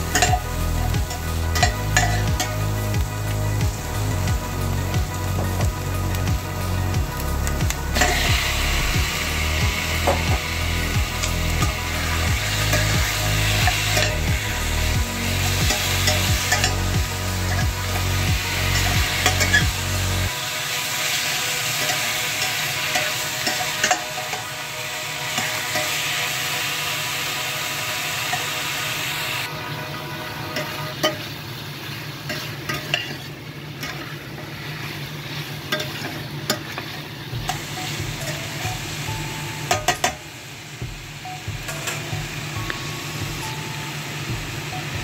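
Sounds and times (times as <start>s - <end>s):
chicken and onion sizzling in pan: 0.0s - 45.0s
metal spatula scraping pan: 30.4s - 39.0s.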